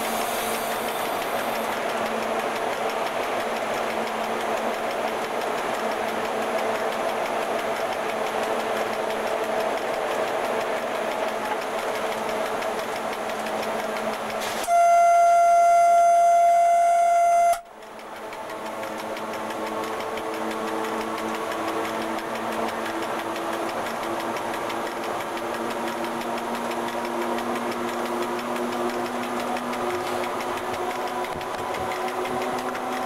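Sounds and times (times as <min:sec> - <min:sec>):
locomotive cab running noise: 0:00.0 - 0:33.0
locomotive horn blast: 0:14.6 - 0:17.6.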